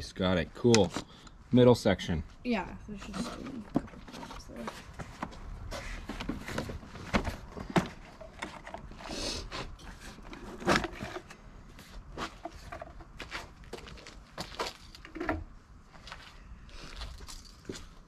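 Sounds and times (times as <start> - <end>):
plastic tubing knocks and rustles: 6.0 - 9.0.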